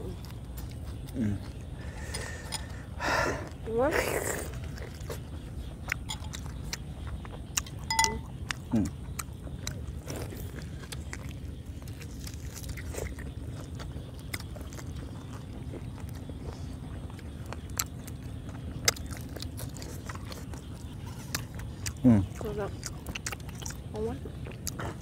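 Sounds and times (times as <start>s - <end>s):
close biting and chewing: 0.0s - 25.0s.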